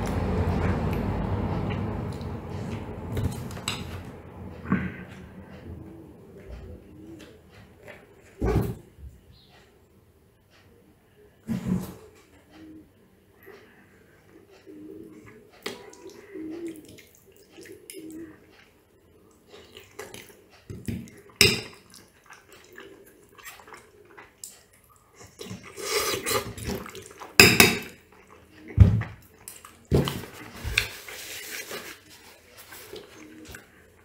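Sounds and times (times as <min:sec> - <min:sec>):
mouth sounds of eating: 0:13.5 - 0:34.0.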